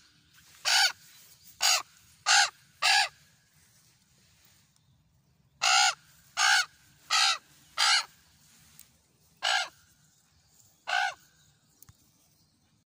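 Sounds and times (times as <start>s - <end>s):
raven cawing: 0.6s - 1.0s, 1.6s - 3.2s, 5.6s - 8.2s, 9.4s - 9.8s, 10.8s - 11.2s.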